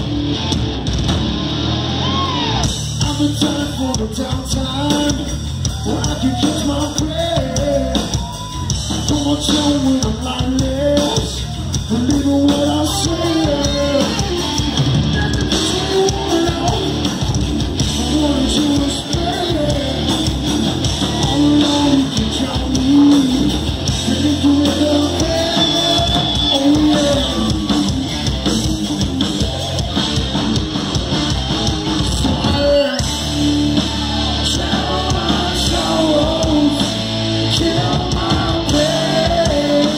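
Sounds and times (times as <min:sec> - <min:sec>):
bass guitar: 0:00.0 - 0:39.9
drum kit: 0:00.0 - 0:39.9
electric guitars: 0:00.0 - 0:39.9
man singing: 0:03.0 - 0:14.6, 0:15.2 - 0:17.1, 0:17.8 - 0:28.7, 0:32.1 - 0:33.2, 0:33.8 - 0:39.9.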